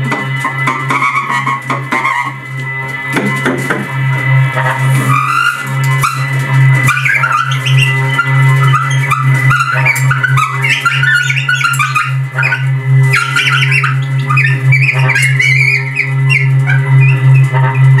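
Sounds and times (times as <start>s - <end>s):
baritone saxophone low drone: 0.0s - 18.0s
squeaky chirping high fragments: 5.0s - 18.0s.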